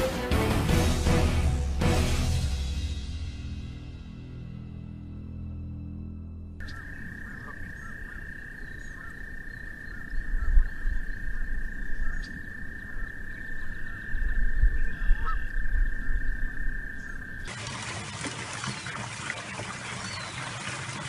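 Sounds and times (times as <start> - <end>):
frog trilling: 6.6 - 17.5.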